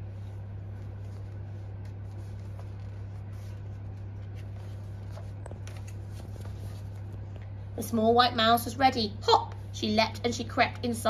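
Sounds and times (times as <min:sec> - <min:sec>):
book pages turning: 0:00.0 - 0:07.5
low electrical hum: 0:00.0 - 0:11.0.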